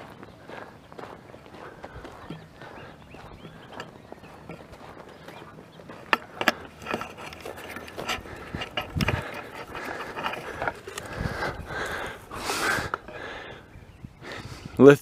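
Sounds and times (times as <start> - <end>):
footsteps on dry grass: 0.0 - 14.5
rustling: 4.5 - 13.4.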